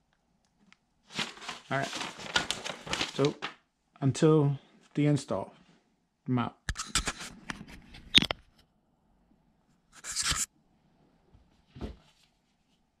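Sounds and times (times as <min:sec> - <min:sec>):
rustling and scraping handling: 0:01.1 - 0:03.5, 0:06.7 - 0:08.6, 0:10.0 - 0:10.5.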